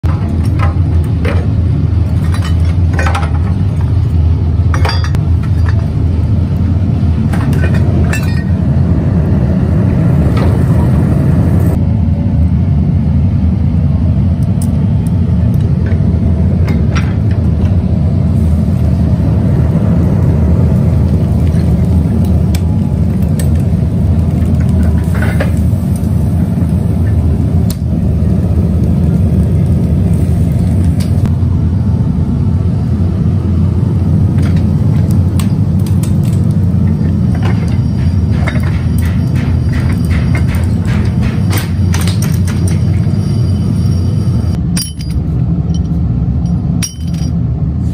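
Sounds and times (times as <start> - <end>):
workshop machinery rumbling: 0.0 - 47.9
metallic clinks and knocks: 35.4 - 44.1, 44.7 - 47.4.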